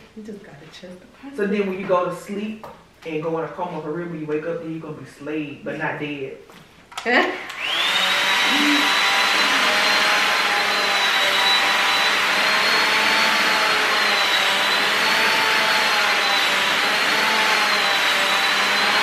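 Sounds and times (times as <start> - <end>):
hair dryer blowing: 7.1 - 19.0.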